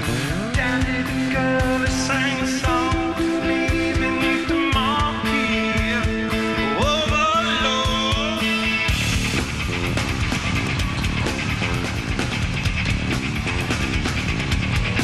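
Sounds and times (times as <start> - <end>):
man singing lead vocal: 0.0 - 9.0
fast drum beat: 0.0 - 15.0
guitar and bass notes: 0.0 - 15.0.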